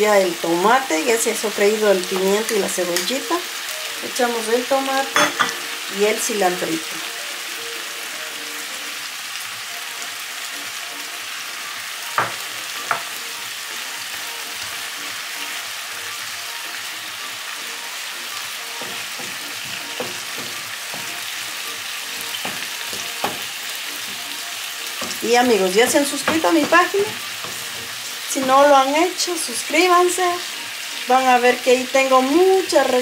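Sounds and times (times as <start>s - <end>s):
vegetables frying in a pan: 0.0s - 33.0s
wooden spoon knocking on pan: 12.1s - 13.2s, 18.8s - 28.6s.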